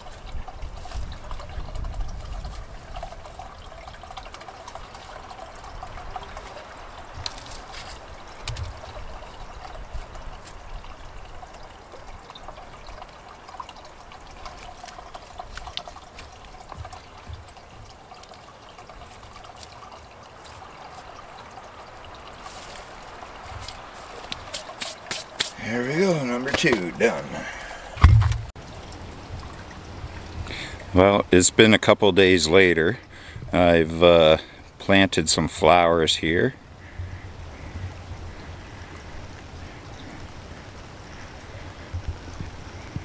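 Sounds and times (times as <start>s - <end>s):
small waterfall trickling: 0.0s - 43.0s
hands patting soil: 22.4s - 28.5s.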